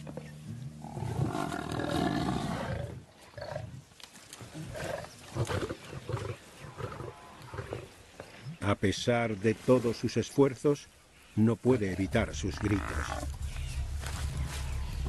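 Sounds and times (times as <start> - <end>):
buffalo bellowing: 12.0 - 15.0.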